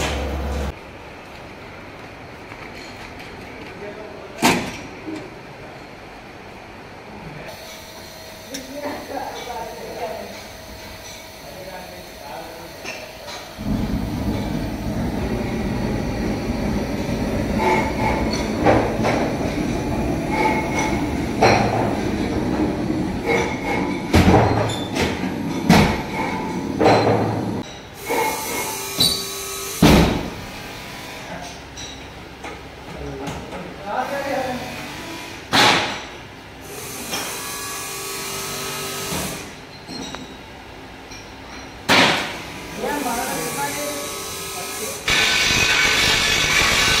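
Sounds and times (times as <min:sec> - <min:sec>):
workshop machine running: 0:00.0 - 0:01.0, 0:07.5 - 0:32.0, 0:41.5 - 0:47.0
steady mechanical rumble: 0:00.0 - 0:02.0, 0:13.6 - 0:23.6.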